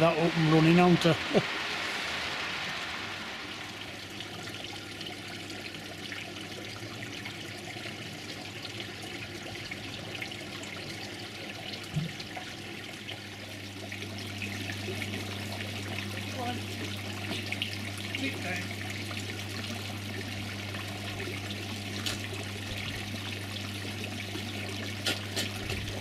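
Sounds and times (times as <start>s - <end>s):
fountain water splashing: 0.0s - 6.0s, 14.4s - 19.0s.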